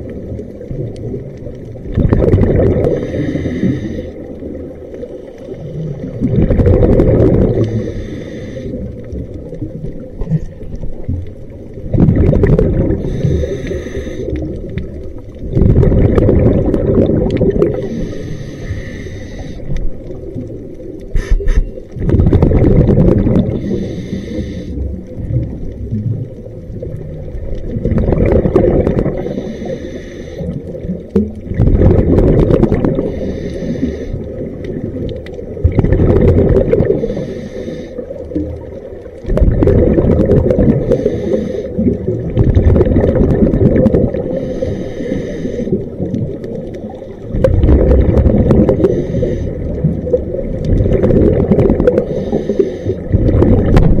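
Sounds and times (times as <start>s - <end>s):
exhaled bubbles rushing: 0.0s - 7.9s, 8.6s - 18.4s, 19.4s - 23.9s, 24.8s - 29.7s, 30.4s - 37.3s, 38.0s - 44.8s, 45.6s - 54.0s
regulator inhalation hiss: 2.9s - 4.3s, 7.6s - 8.8s, 13.0s - 14.4s, 17.8s - 19.8s, 21.1s - 21.7s, 23.5s - 24.8s, 29.2s - 30.5s, 33.0s - 34.2s, 37.0s - 38.1s, 40.8s - 41.8s, 44.3s - 45.8s, 48.8s - 49.7s, 52.0s - 53.1s.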